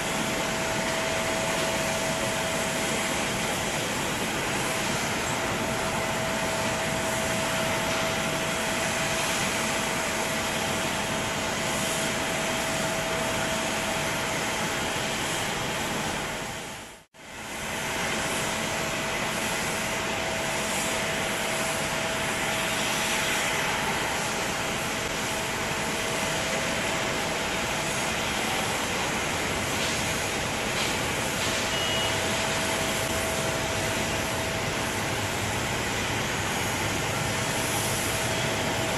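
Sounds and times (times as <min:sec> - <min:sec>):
distant jet engines humming: 0:17.8 - 0:38.9.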